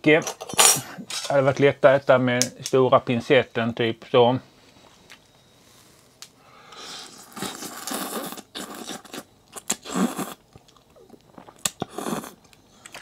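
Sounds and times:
person slurping noodles: 0:06.9 - 0:10.4, 0:11.3 - 0:12.4
person chewing: 0:07.0 - 0:13.0.

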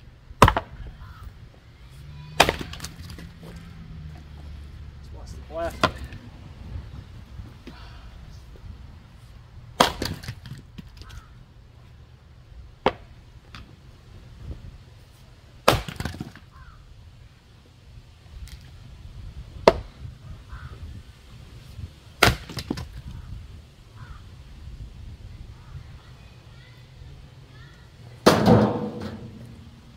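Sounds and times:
maul striking firewood: 0:00.4 - 0:01.2, 0:02.4 - 0:03.3, 0:05.6 - 0:06.2, 0:09.8 - 0:11.2, 0:12.8 - 0:13.6, 0:15.6 - 0:16.6, 0:19.6 - 0:19.9, 0:22.2 - 0:23.1, 0:28.2 - 0:29.7.

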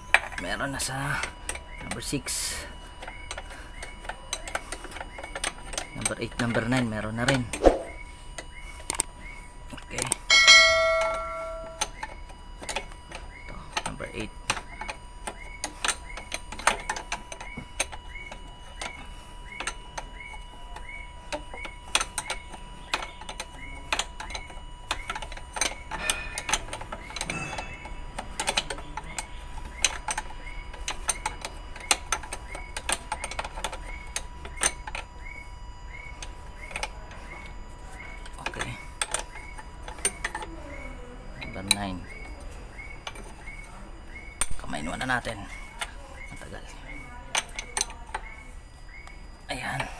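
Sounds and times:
diesel engine cranking: 0:00.0 - 0:07.6, 0:08.4 - 0:49.9
rapid mechanical clicking: 0:00.0 - 0:49.9
regular ticking: 0:00.0 - 0:49.9
spanner clinking on metal: 0:09.8 - 0:35.2, 0:36.2 - 0:48.5.

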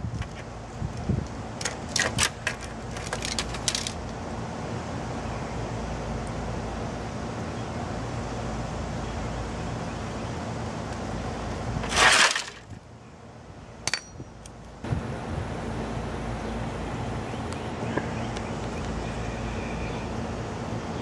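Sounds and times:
outdoor background hiss: 0:00.0 - 0:21.0
hammer clinking on metal: 0:13.9 - 0:14.3.

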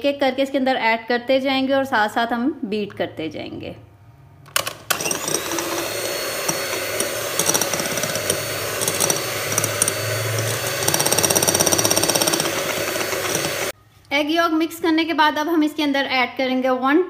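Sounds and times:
electric hand mixer running: 0:04.6 - 0:13.8.

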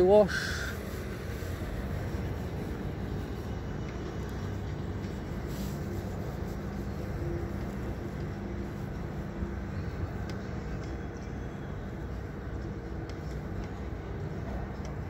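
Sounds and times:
outdoor background rumble: 0:00.0 - 0:15.0.

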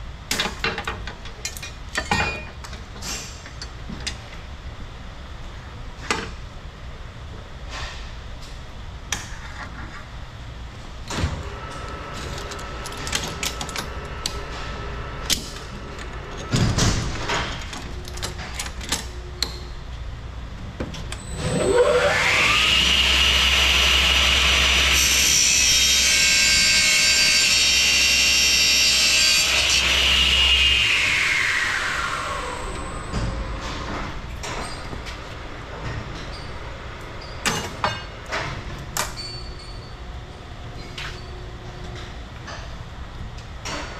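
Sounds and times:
chop saw whining: 0:21.4 - 0:26.0.

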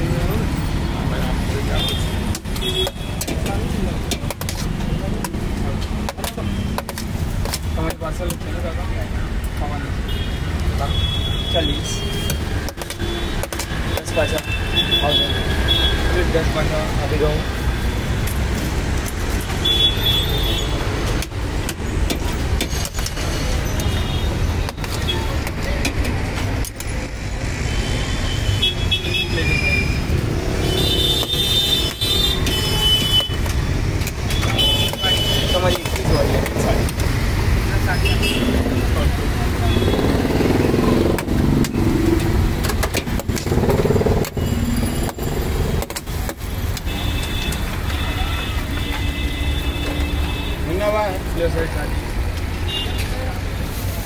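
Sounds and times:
road traffic rumble: 0:00.0 - 0:54.0
sharp clicks and knocks: 0:01.9 - 0:08.6, 0:12.2 - 0:14.5, 0:21.0 - 0:24.0, 0:24.6 - 0:27.2, 0:31.0 - 0:37.2, 0:40.0 - 0:48.0.

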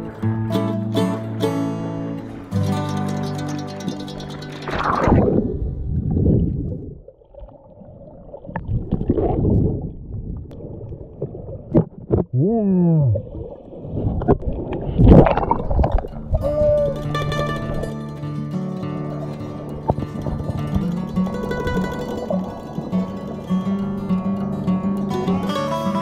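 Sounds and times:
underwater sloshing and gurgling: 0:03.7 - 0:12.4, 0:13.0 - 0:16.5, 0:18.8 - 0:25.1
loud splash: 0:03.8 - 0:07.0, 0:13.2 - 0:17.8.

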